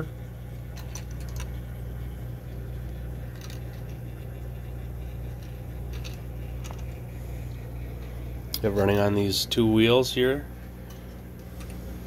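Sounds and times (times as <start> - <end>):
small motor humming: 0.0 - 9.5.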